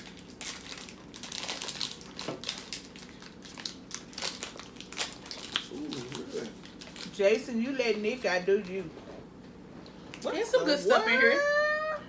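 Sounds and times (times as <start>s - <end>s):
plastic wrappers crinkling: 0.0s - 8.8s.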